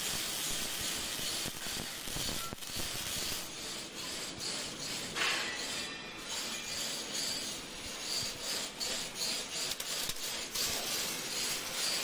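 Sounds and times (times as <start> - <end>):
arc welding crackling hiss: 0.0 - 12.0.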